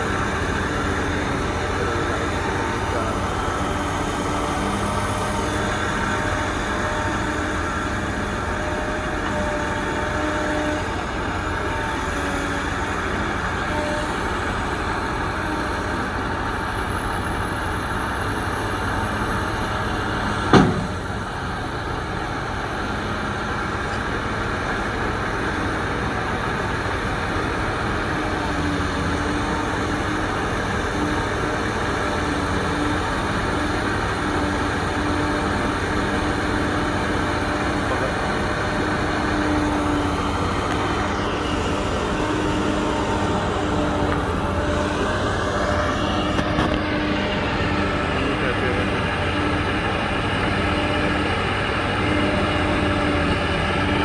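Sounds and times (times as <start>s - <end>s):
diesel engines droning: 0.0s - 54.0s
sharp bang: 20.5s - 21.1s.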